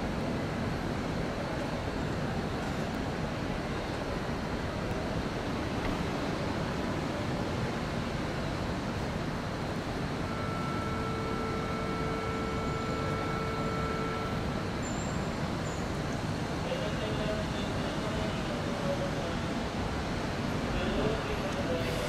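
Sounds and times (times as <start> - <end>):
electric train rumbling: 0.0 - 22.0
multi-pitch motor whine: 10.2 - 14.7.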